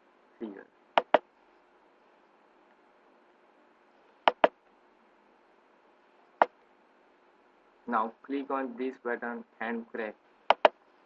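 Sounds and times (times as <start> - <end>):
faint microphone hiss: 0.0 - 11.0
mouse button clicks: 1.0 - 1.2, 4.3 - 4.5, 10.5 - 10.7.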